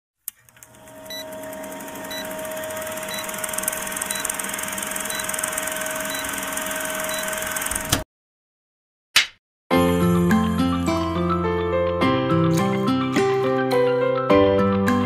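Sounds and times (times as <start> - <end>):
film projector whirring: 0.3 - 8.0.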